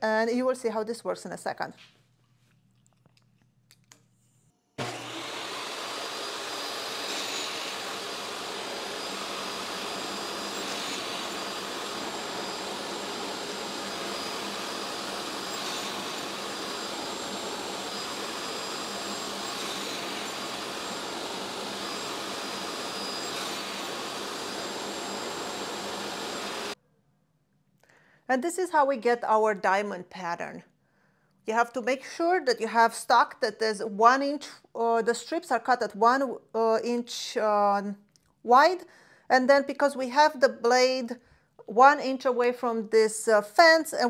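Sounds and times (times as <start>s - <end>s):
saw cutting wood: 4.8s - 26.8s
table saw whining: 4.8s - 26.8s.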